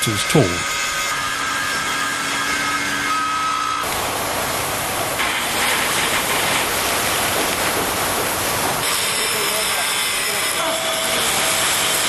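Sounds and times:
angle grinder grinding steel: 0.0s - 3.9s, 8.9s - 12.0s
arc welding hiss: 5.1s - 7.8s, 8.6s - 12.0s.

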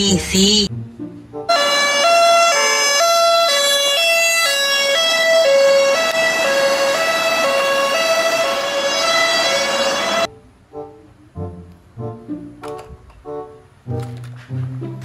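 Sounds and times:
police siren two-tone: 1.5s - 10.3s.

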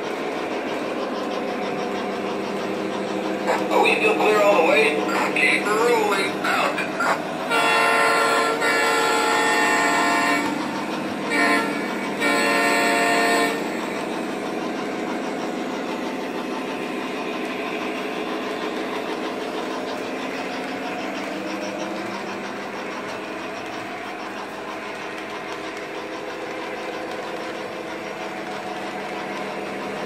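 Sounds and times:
diesel engine running: 0.0s - 30.0s
train wheels rolling: 0.0s - 30.0s
electronic train horn blasts: 7.5s - 13.8s.

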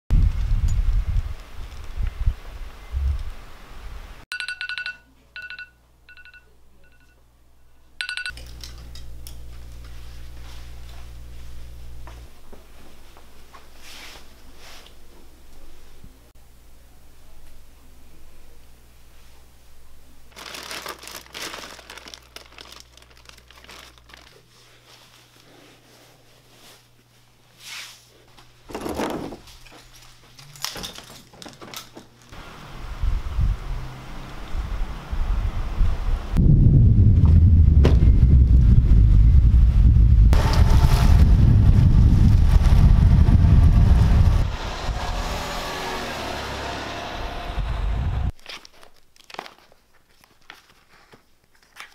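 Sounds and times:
low hum: 5.4s - 13.8s, 32.4s - 48.3s
rustling and crinkling handling noise: 20.3s - 32.4s, 48.3s - 51.9s
dull thud: 37.2s - 38.1s.

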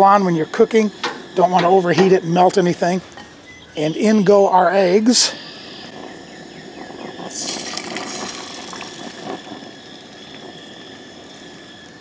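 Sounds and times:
eggs sizzling in hot oil: 5.6s - 12.0s.

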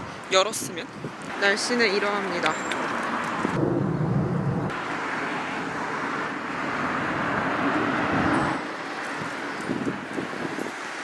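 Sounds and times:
low dull traffic rumble: 0.0s - 11.0s
cars hissing by: 4.7s - 11.0s.

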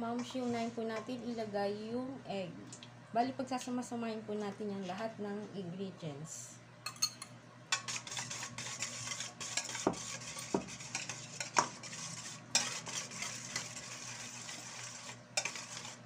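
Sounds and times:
whisk beating in metal bowl: 7.7s - 16.0s.

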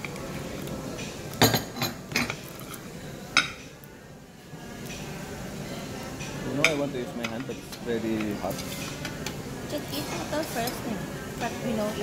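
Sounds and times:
cutlery clinking against a plate: 0.9s - 2.8s, 6.2s - 9.4s.

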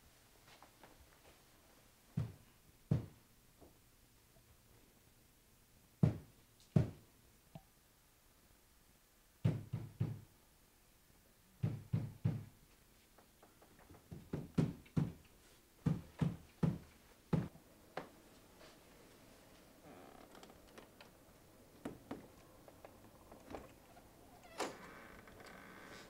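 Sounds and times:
knocking on a door: 2.2s - 3.2s, 6.0s - 7.0s, 9.4s - 10.2s, 11.6s - 12.5s, 14.1s - 15.2s.

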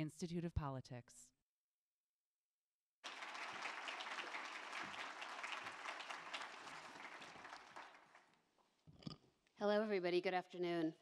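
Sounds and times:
audience applauding: 3.0s - 8.4s.

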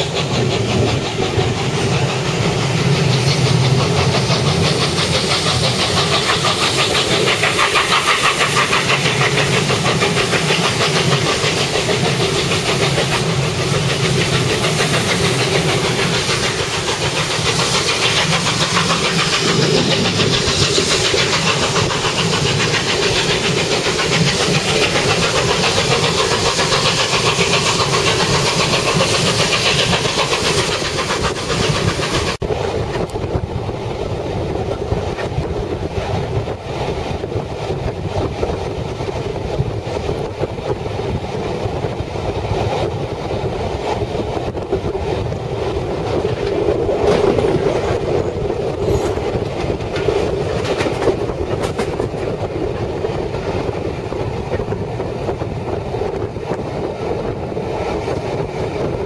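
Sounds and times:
steam locomotive exhaust beats: 0.0s - 59.0s
wheel and rail noise: 0.0s - 59.0s.

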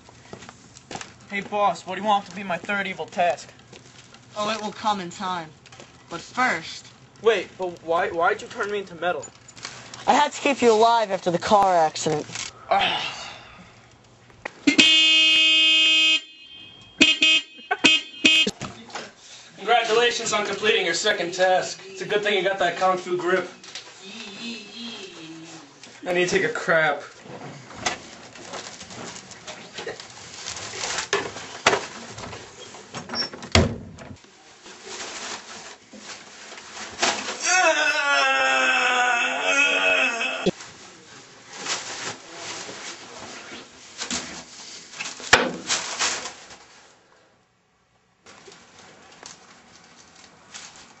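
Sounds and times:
car horn honking: 14.7s - 18.6s, 24.2s - 25.4s
rustling and bumping: 27.2s - 37.4s.

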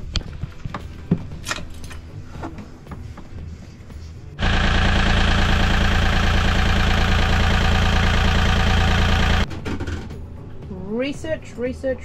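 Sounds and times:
marine diesel engine idling: 4.4s - 9.5s.

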